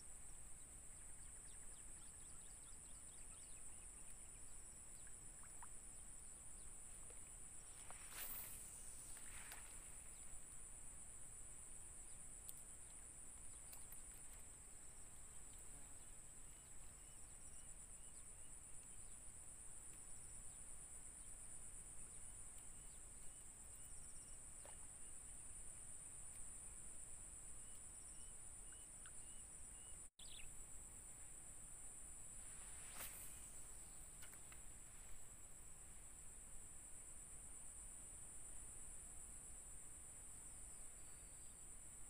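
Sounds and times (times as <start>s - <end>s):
faint small chirps: 0.9s - 10.4s, 12.0s - 14.5s, 27.6s - 30.6s, 32.5s - 35.2s
short rustle: 7.6s - 10.3s, 32.4s - 35.2s.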